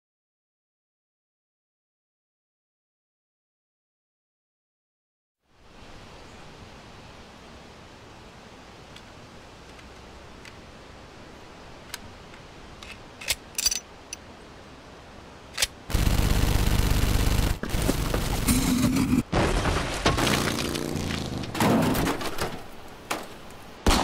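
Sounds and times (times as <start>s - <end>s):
gunshots: 15.9s - 20.8s.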